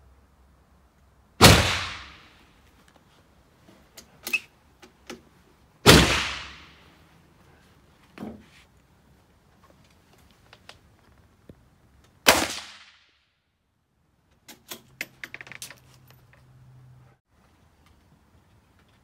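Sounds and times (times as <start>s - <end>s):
rifle shot: 1.4s - 2.4s, 5.8s - 6.8s, 12.3s - 13.1s
rifle metallic clicks and rattles: 14.3s - 16.6s.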